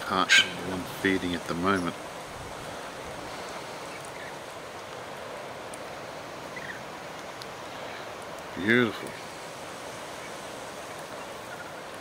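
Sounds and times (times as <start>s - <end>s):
steady outdoor hiss: 0.0s - 12.0s
faint bird chirp: 2.8s - 4.4s, 6.5s - 6.9s, 10.1s - 11.9s.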